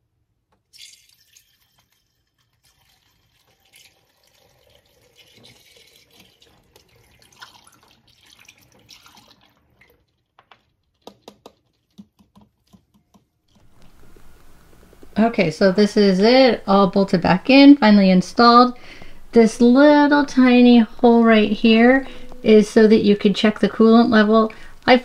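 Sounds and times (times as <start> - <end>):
liquid trickling through funnel: 0.7 - 10.3.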